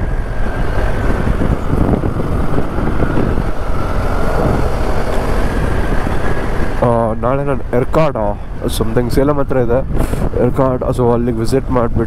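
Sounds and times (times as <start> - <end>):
motorcycle running: 0.0 - 8.0
road noise: 0.0 - 12.0
wind rush: 0.0 - 12.0.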